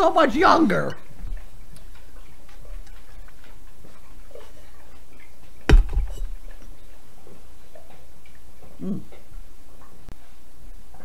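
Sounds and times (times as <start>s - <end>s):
bottle set down on desk: 5.7s - 6.4s.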